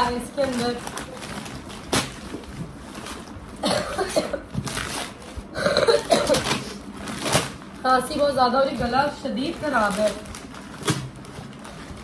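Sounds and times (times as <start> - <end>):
wrapping paper rustling and tearing: 0.0 - 3.6, 4.6 - 5.5, 6.4 - 12.0
woman coughing: 3.6 - 4.5, 5.6 - 6.6.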